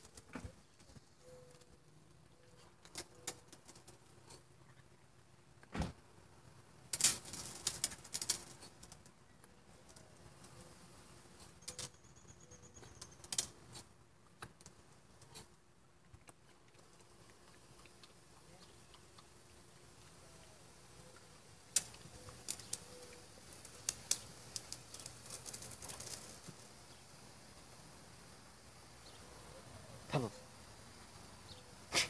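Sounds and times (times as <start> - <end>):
sprinkler water pattering on grass: 6.7 - 12.0, 12.8 - 32.0.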